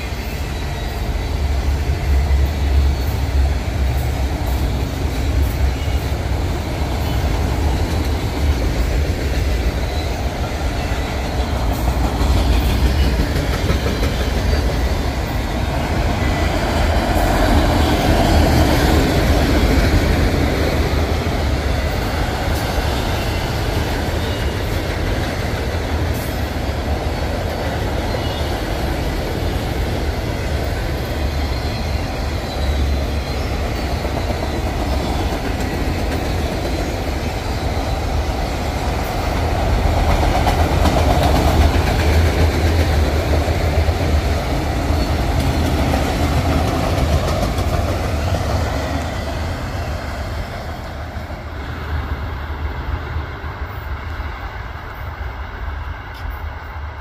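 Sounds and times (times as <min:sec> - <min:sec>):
freight train wheels clattering: 0:00.0 - 0:51.5.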